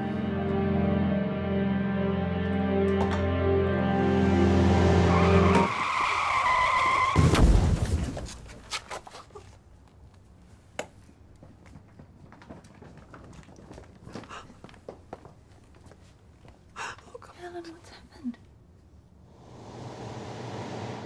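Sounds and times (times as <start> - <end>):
music: 0.0 - 5.7
car tyres screeching: 4.7 - 7.3
loud crash impact: 7.2 - 8.3.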